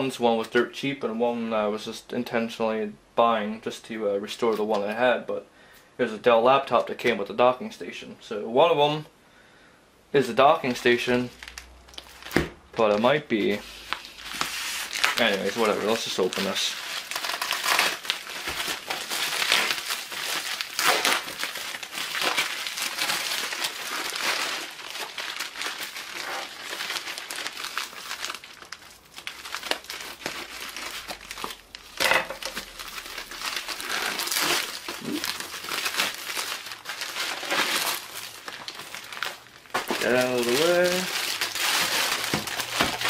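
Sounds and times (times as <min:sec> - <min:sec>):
plastic packaging crinkling: 0:10.7 - 0:43.0.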